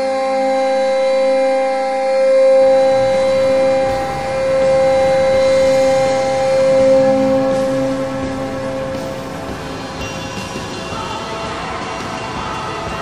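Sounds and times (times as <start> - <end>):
goal horn blast: 2.4 - 10.4
rushing noise: 2.5 - 11.4.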